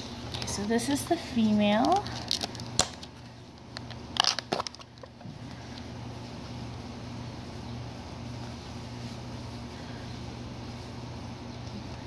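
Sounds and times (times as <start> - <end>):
steady low hum: 0.0 - 12.0
plastic clicks and crackles: 1.8 - 5.2.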